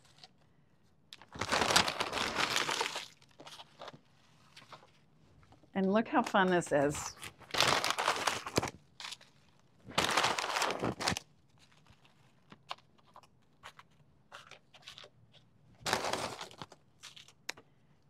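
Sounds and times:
chip bag crinkling: 1.2 - 3.9, 7.2 - 13.8, 15.8 - 17.4.

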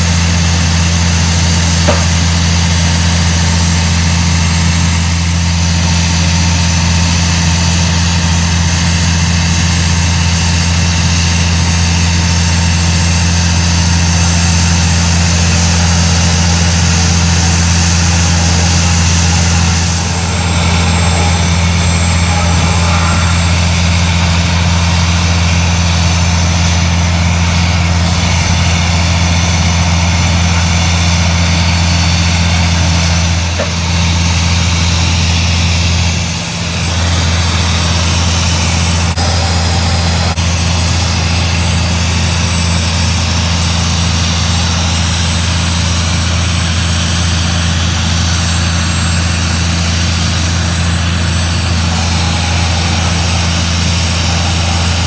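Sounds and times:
drilling rig engine drone: 0.0 - 55.0
air compressor hiss: 12.9 - 35.8, 36.4 - 55.0.

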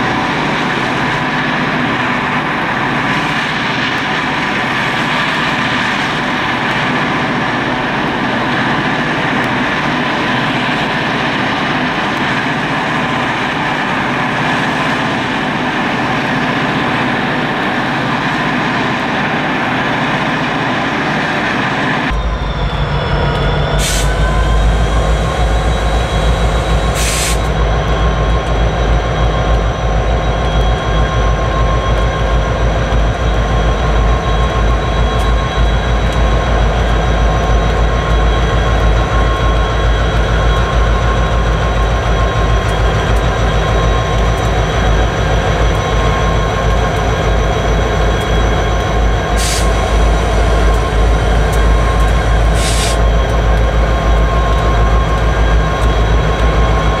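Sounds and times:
diesel locomotives idling: 0.0 - 57.0
locomotive engine rumble: 0.0 - 57.0
locomotive whine: 0.0 - 57.0
short air hisses: 26.9 - 27.5, 49.4 - 49.8, 52.6 - 53.0.

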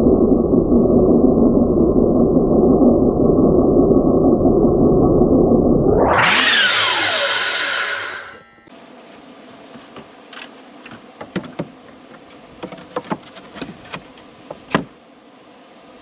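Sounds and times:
miter saw blade winding down: 5.4 - 8.7
light knocks on wooden siding: 10.9 - 14.9.

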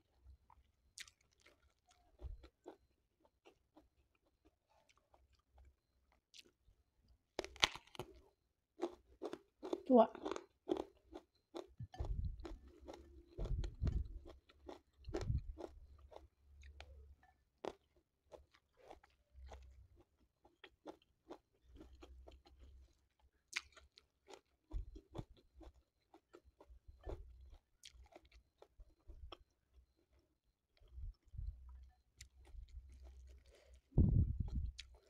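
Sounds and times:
chewing and crunching: 0.3 - 6.7, 7.3 - 35.0.

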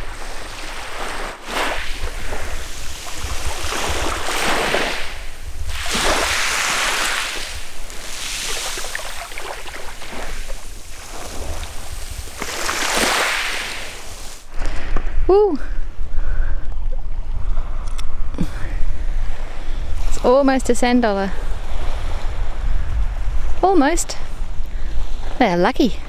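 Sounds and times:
small waves washing on beach: 0.0 - 15.3
wind rumbling on microphone: 0.0 - 26.0.

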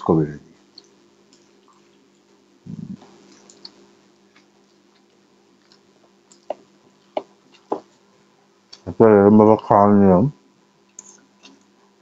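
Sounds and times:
steady low hum: 0.0 - 12.0
crunchy chewing: 3.0 - 8.0.

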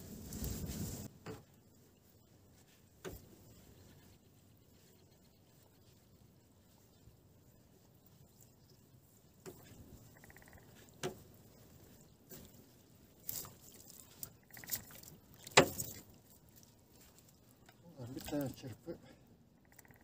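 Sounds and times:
water dripping: 12.4 - 18.3.

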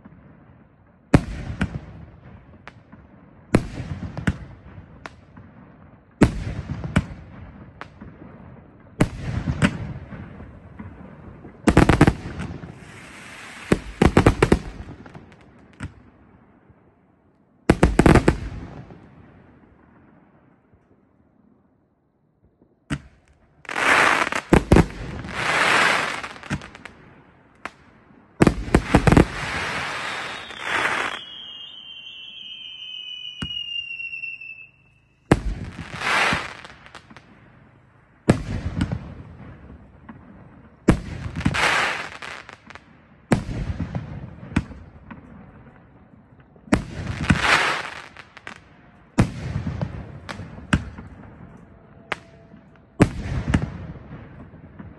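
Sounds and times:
firework volleys bursting: 11.7 - 14.9, 28.4 - 37.2
falling firework whistle: 12.8 - 14.2, 28.7 - 37.0, 47.0 - 48.6.

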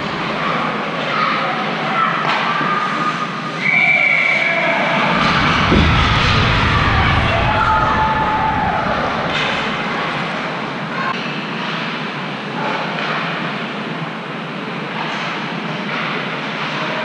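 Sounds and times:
crowd of spectators: 0.0 - 12.7.

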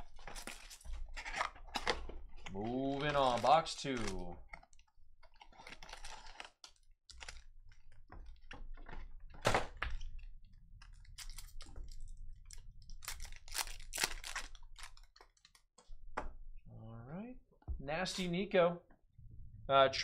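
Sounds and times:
foil wrappers crinkling: 0.0 - 8.4, 10.9 - 15.6
pack being torn open: 13.0 - 15.6
faint low rumble: 19.1 - 20.0.

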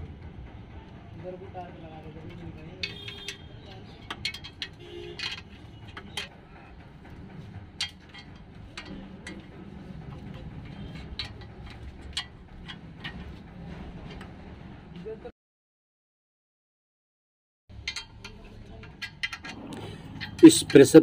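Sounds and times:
spanner clicking on bolts: 2.8 - 6.3, 7.7 - 13.3, 17.7 - 21.0.

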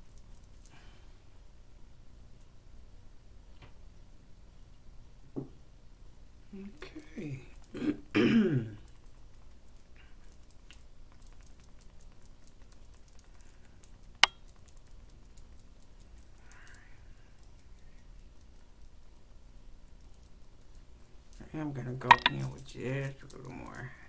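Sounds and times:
faint light ticking: 8.8 - 23.5.

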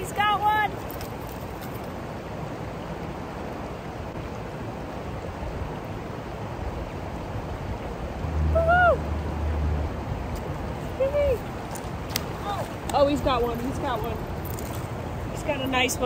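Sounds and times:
river flowing over rocks: 0.0 - 16.0
person shouting woo-hoo: 8.5 - 9.1.

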